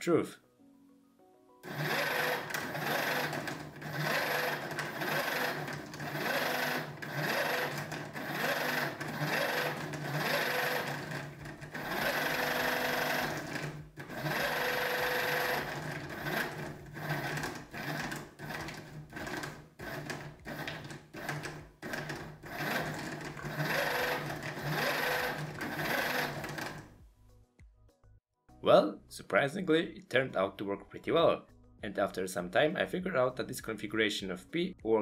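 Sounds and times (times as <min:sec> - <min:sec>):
electric motor running through gearbox: 0:01.6 - 0:26.9.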